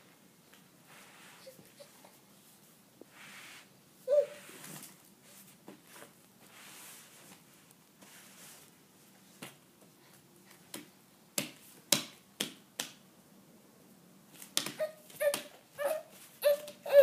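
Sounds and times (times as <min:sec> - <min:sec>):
faint soft rustling: 0:00.0 - 0:10.8.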